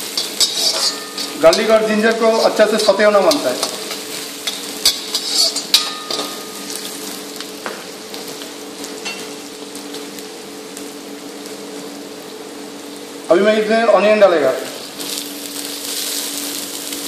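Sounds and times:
metal ladle scraping wok: 0.0s - 1.7s, 4.4s - 6.4s
food sizzling in hot oil: 0.0s - 17.0s.

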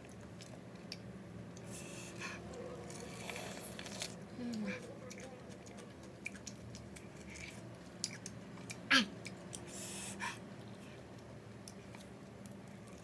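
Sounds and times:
wet chewing clicks: 0.0s - 1.7s, 2.9s - 9.8s.

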